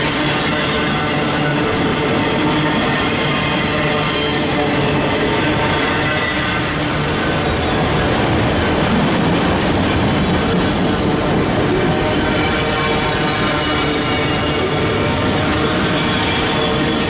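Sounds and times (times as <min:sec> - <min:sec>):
freight train wheels rumbling: 0:00.0 - 0:17.0
wheel squeal: 0:02.7 - 0:07.8, 0:12.4 - 0:17.0.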